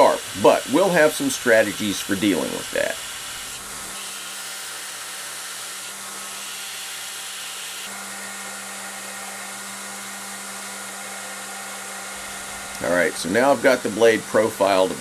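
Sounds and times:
steel grinding hiss: 0.0 - 7.9
belt grinder motor hum: 0.0 - 15.0.

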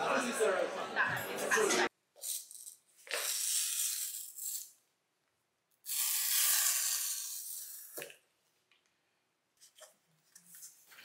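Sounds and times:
packing tape ripping off box: 2.2 - 4.7, 5.9 - 8.1.

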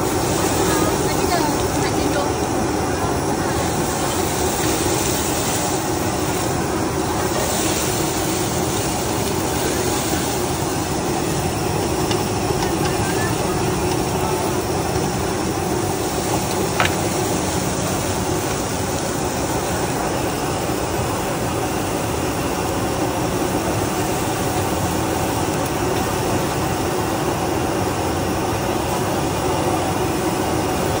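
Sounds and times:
steady roar of noise: 0.0 - 31.0.

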